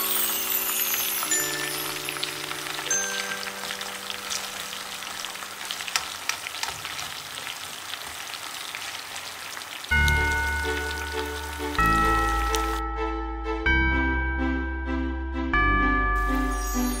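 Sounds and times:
music: 0.0 - 5.2, 9.9 - 17.0
fries sizzling in hot oil: 0.0 - 12.8.

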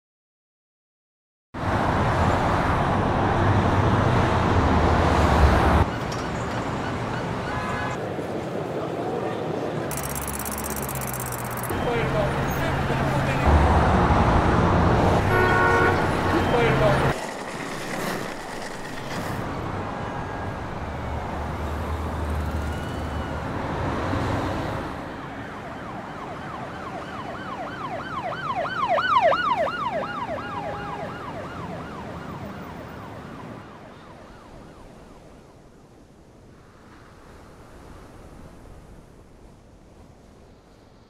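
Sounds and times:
road traffic: 1.6 - 39.0
emergency siren yelping: 25.4 - 35.0.

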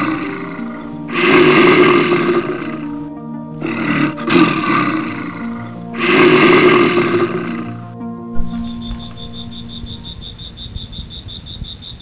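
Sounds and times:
large animal roaring: 0.0 - 7.9
background music: 0.0 - 11.6.

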